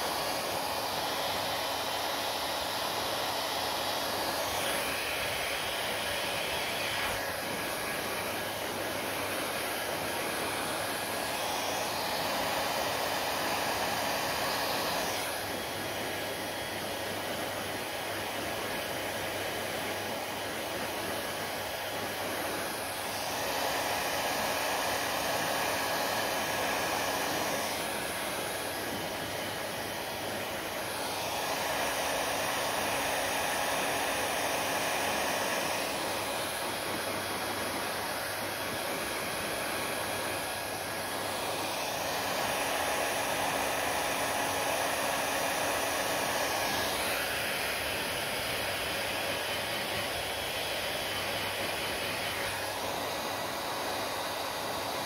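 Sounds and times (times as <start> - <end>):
hair dryer blowing: 0.0 - 55.0.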